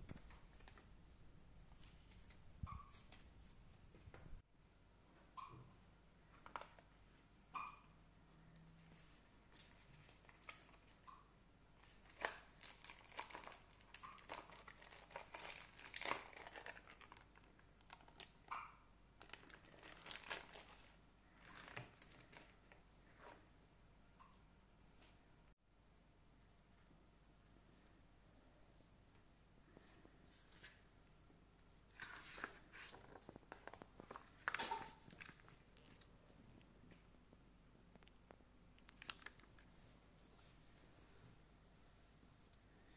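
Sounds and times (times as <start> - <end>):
packaging crinkling and rustling: 11.8 - 18.4, 19.2 - 22.8, 32.0 - 36.2, 38.8 - 39.7.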